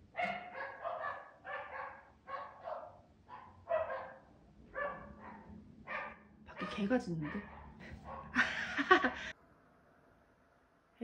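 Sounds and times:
dog barking: 0:00.1 - 0:08.4.

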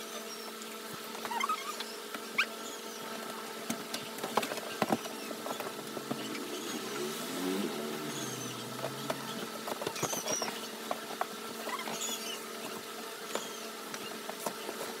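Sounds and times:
steady room hum: 0:00.0 - 0:15.0
low falling tone: 0:05.6 - 0:09.6.

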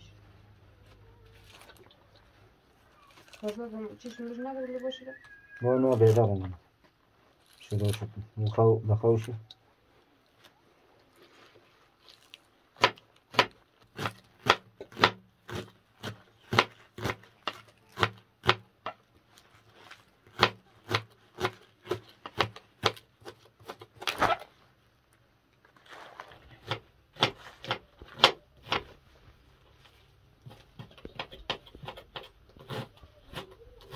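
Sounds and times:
knife chopping on cutting board: 0:12.8 - 0:18.6, 0:20.3 - 0:23.9.

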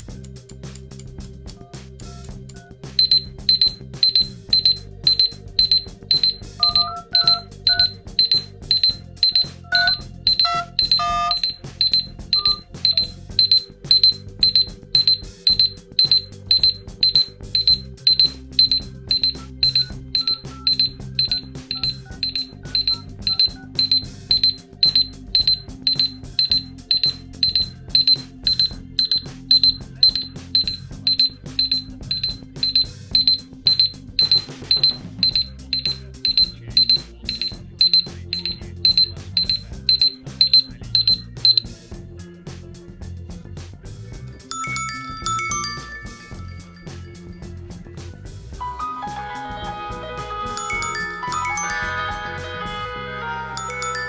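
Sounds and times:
timer alarm beeping: 0:03.0 - 0:41.7, 0:44.5 - 0:46.5.

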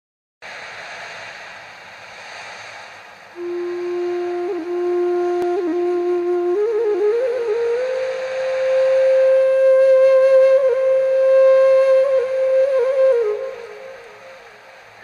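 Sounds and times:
soft airy music wash: 0:00.6 - 0:15.0
flute holding low note: 0:03.4 - 0:14.8.

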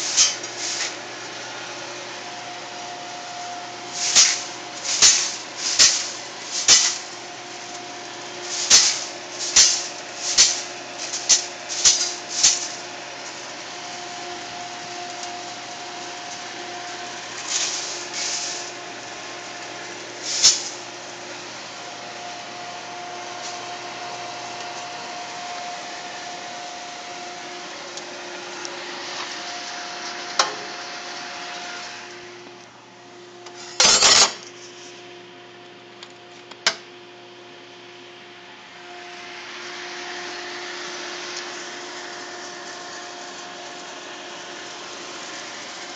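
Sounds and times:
roaster blower hum: 0:00.0 - 0:45.9
coffee beans rattling on tray: 0:03.9 - 0:07.2, 0:08.4 - 0:12.8, 0:20.2 - 0:20.8.

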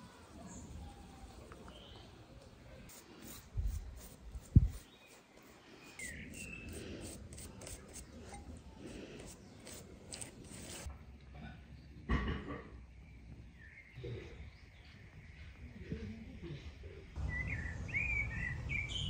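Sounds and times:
bird chirping: 0:04.7 - 0:06.8, 0:17.2 - 0:19.0.

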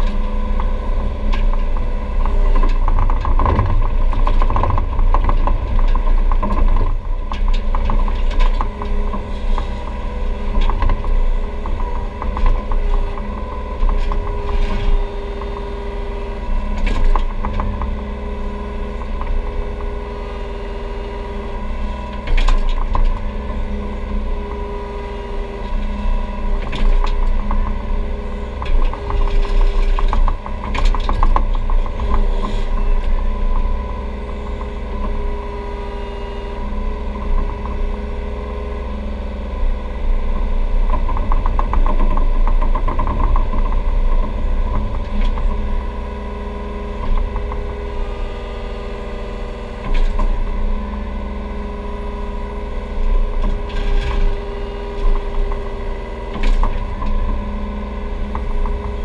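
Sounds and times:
excavator diesel engine running: 0:00.0 - 0:59.0
hydraulics whining: 0:00.0 - 0:59.0
machine clunks and knocks: 0:02.5 - 0:08.8.

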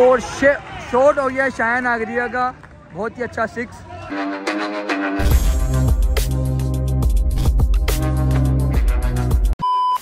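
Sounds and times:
music with deep bass and beat: 0:04.1 - 0:09.6.

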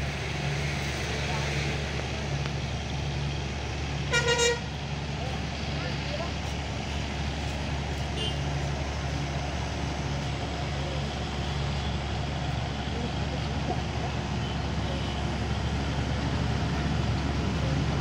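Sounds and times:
diesel locomotive low drone: 0:00.0 - 0:18.0.

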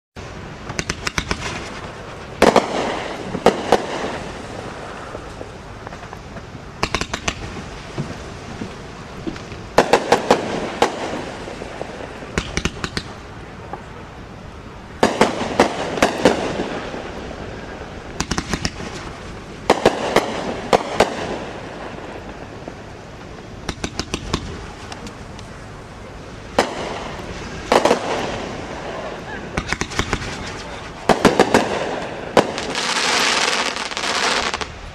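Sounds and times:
firework bangs: 0:00.2 - 0:13.9, 0:14.9 - 0:25.6, 0:26.3 - 0:34.9
firework hiss: 0:00.2 - 0:34.9.

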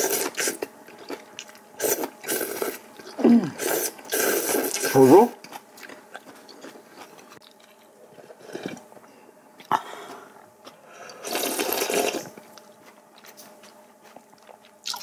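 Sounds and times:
person slurping broth: 0:01.8 - 0:04.9, 0:11.1 - 0:12.2.

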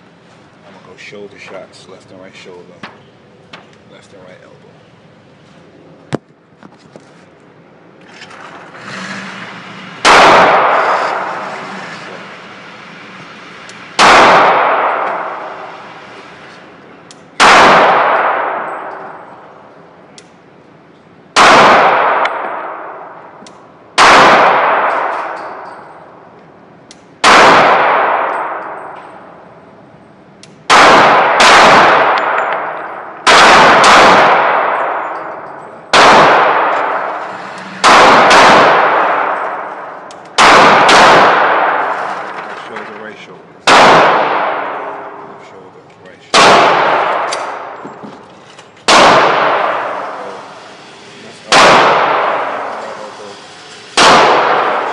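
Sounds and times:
gunshots echoing indoors: 0:09.9 - 0:11.6, 0:13.3 - 0:16.1, 0:17.4 - 0:19.7, 0:21.3 - 0:26.3, 0:27.2 - 0:29.4, 0:30.6 - 0:42.6, 0:43.6 - 0:45.4, 0:46.3 - 0:47.8, 0:48.8 - 0:50.5, 0:51.4 - 0:53.2, 0:53.9 - 0:54.9.

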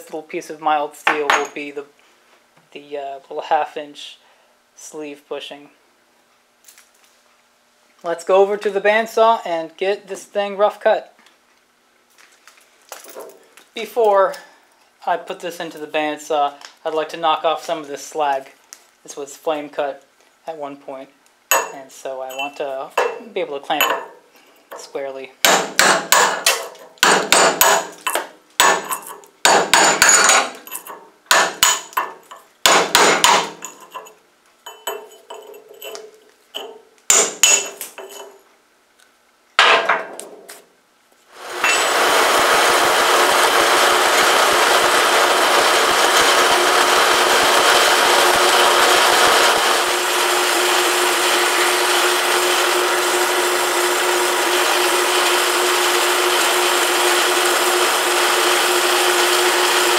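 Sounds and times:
bandsaw cutting metal: 0:21.5 - 0:23.2, 0:25.4 - 0:34.1, 0:34.7 - 0:38.4, 0:41.4 - 0:59.9.

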